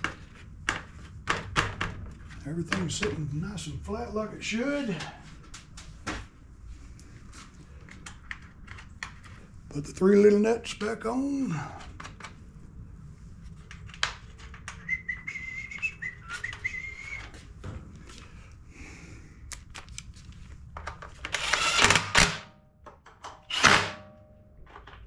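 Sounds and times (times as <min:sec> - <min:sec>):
person whistling: 0:14.8 - 0:17.3
cordless drill spinning: 0:21.3 - 0:22.2.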